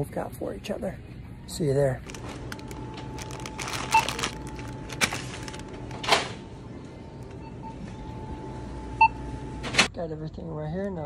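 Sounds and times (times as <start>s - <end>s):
plastic packaging rustle: 2.0s - 6.3s
scanner beep: 7.4s - 9.5s.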